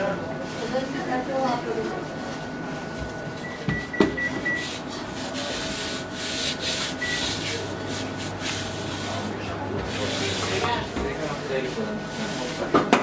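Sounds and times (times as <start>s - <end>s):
rolling pin rubbing over flour: 4.4s - 12.8s.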